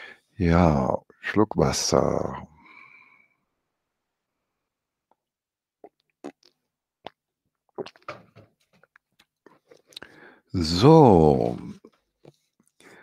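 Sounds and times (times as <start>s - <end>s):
person sipping and swallowing: 5.8s - 10.3s.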